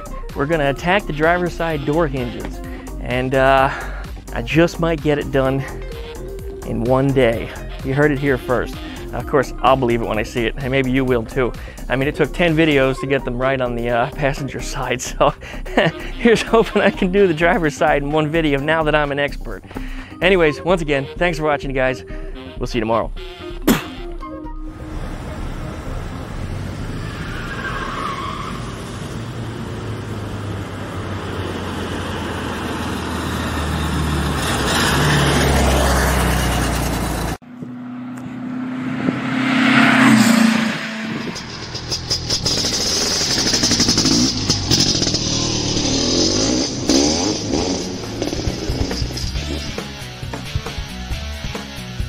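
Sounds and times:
car engine driving hard: 0.0 - 12.7, 24.6 - 52.0
car passing loudly: 24.7 - 50.2.

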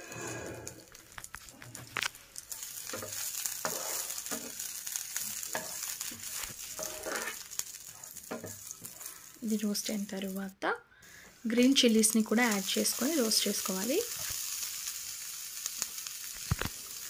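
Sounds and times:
spices sizzling in a frying pan: 0.7 - 17.0
spatula scraping a pan: 1.7 - 9.4.

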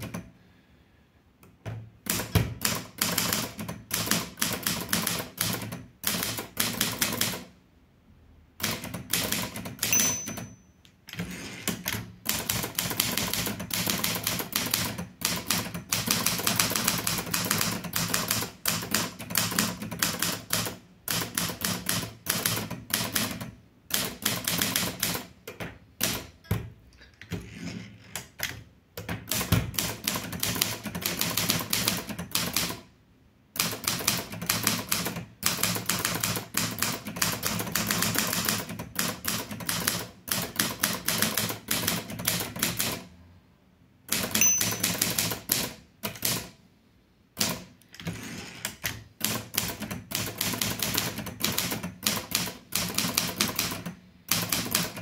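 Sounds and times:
manual typewriter typing: 2.0 - 7.5, 8.6 - 10.5, 11.2 - 25.4, 28.2 - 32.8, 33.6 - 43.1, 44.1 - 46.6, 47.4 - 47.8, 48.6 - 55.0
typewriter carriage return clack: 44.2 - 46.5.

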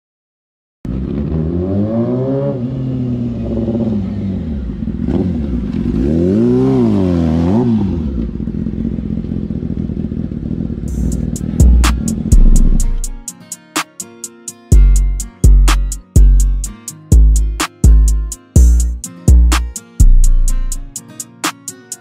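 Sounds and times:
motorcycle engine revving: 0.9 - 13.1.

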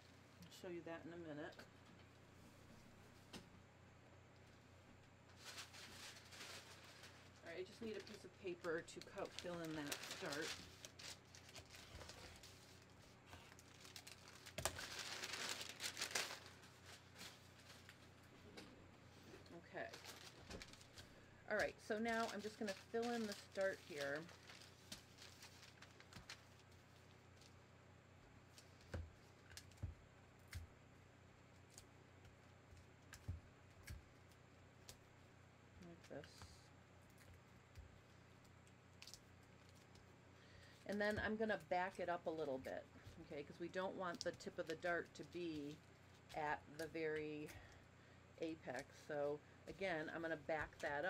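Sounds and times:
paper sheets rustling: 5.3 - 18.1, 22.0 - 26.6.

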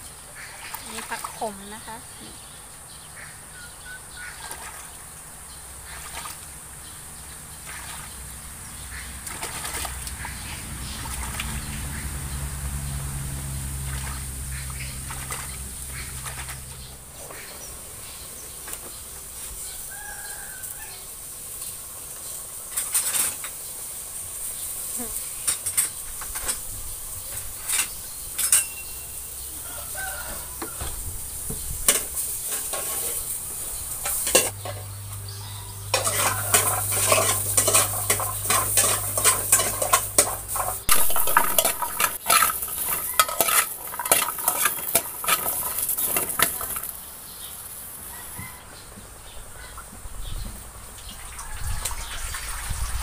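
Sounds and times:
food sizzling: 15.5 - 48.3
metal ladle scraping a wok: 22.7 - 23.6, 31.8 - 34.9, 35.7 - 47.5
dishes and pans clinking: 27.4 - 29.2, 31.9 - 33.3, 34.0 - 34.9, 35.8 - 47.0.

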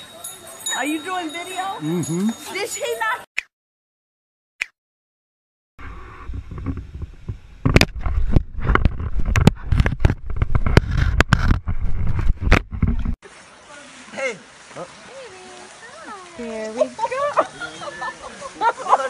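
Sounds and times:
knocks and scrapes on microphone: 5.8 - 13.2
microphone handling rumble: 5.8 - 13.2.

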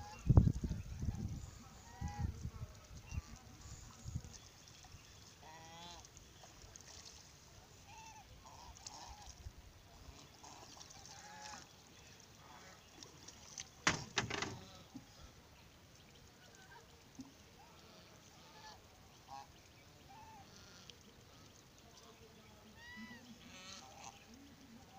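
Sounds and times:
ducks calling: 7.8 - 9.3, 17.6 - 21.6, 22.8 - 24.3.

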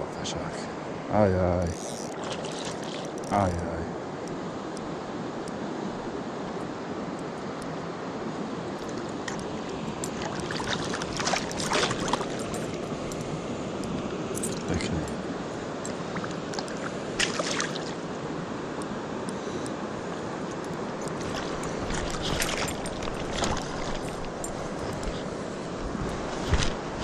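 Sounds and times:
river water rushing: 0.0 - 27.0
fish splashing at surface: 10.1 - 12.7, 15.9 - 18.0.

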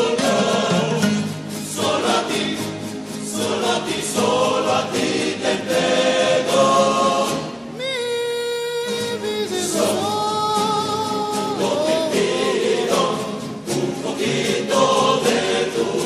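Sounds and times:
choir singing: 0.0 - 16.0
string accompaniment: 8.9 - 16.0.

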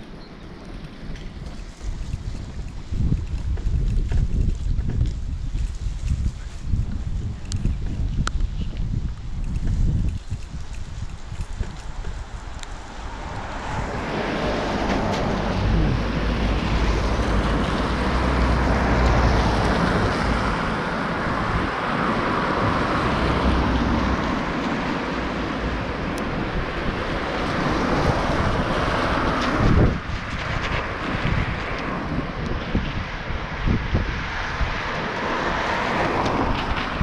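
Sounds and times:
wind rushing over microphone: 0.0 - 37.0
bicycle tyres hissing on wet road: 0.5 - 37.0
low rumble: 1.2 - 27.4.

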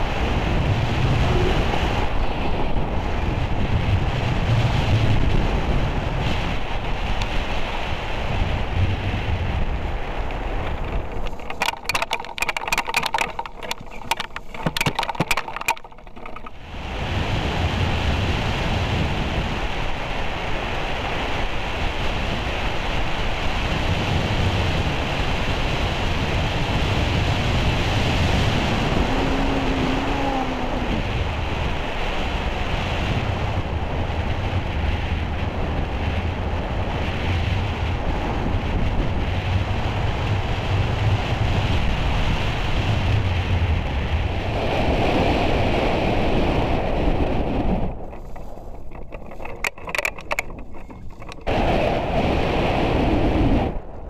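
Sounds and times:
wind rush with low rumble: 0.0 - 54.0
clicks: 10.3 - 16.6, 48.1 - 51.5.

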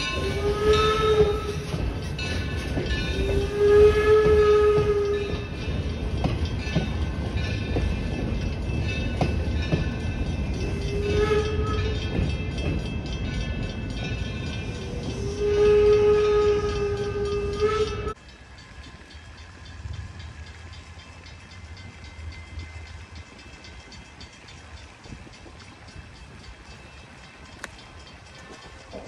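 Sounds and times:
steam whistle blasts: 0.0 - 1.8, 3.2 - 5.4, 10.7 - 12.0, 14.8 - 18.2.

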